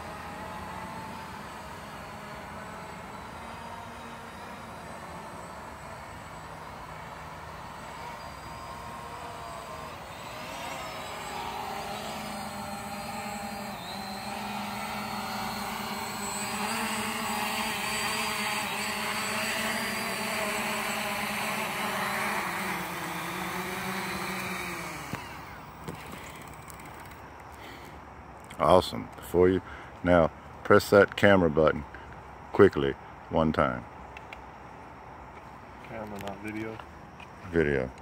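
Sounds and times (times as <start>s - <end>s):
drone motors whining: 0.0s - 28.6s.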